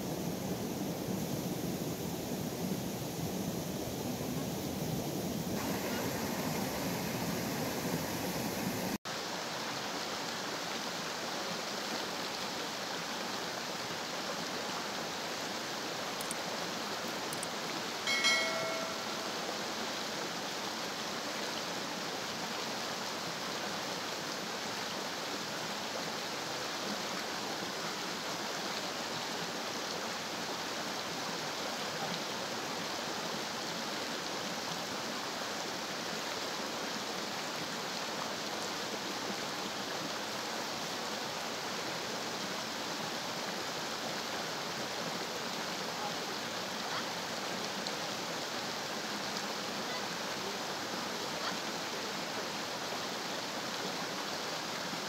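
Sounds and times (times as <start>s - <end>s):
wind rush: 0.0s - 9.0s
stream rushing: 0.0s - 55.0s
short bell ding: 18.1s - 19.5s.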